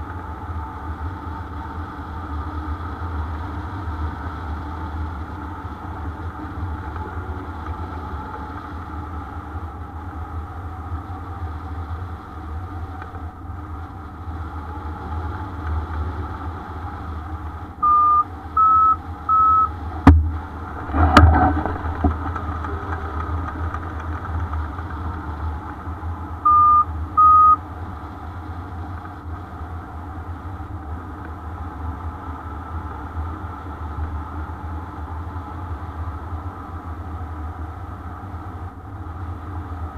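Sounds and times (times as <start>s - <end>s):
variometer beeps: 17.8s - 19.8s, 26.4s - 27.6s
wind rushing over microphone: 19.9s - 26.3s
sharp knocks: 20.0s - 20.3s.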